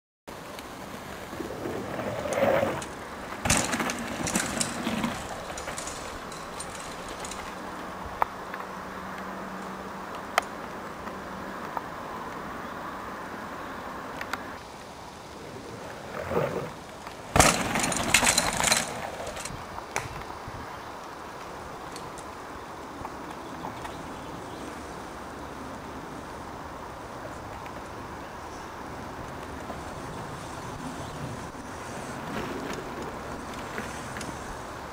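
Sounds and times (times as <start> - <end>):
bike tyres on dirt: 0.3 - 11.8, 14.5 - 26.4, 27.1 - 34.9
steady hiss: 0.3 - 34.9
bike chain and frame rattle: 1.9 - 7.6, 17.2 - 19.6.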